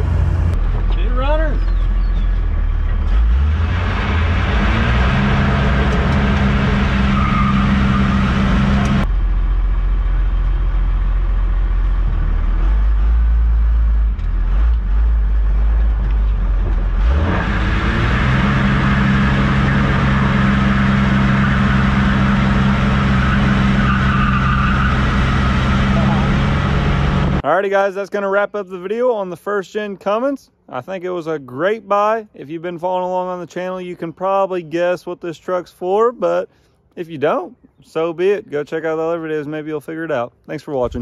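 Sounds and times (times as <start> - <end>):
diesel truck engine running: 0.0 - 27.4.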